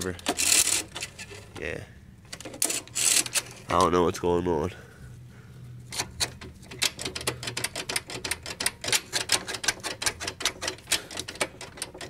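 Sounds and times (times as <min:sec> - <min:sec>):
socket ratchet clicking: 0:05.9 - 0:12.0.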